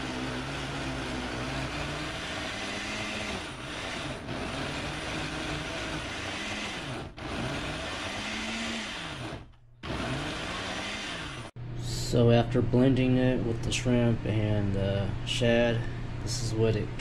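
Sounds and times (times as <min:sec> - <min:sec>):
blender motor grinding: 0:00.0 - 0:11.6.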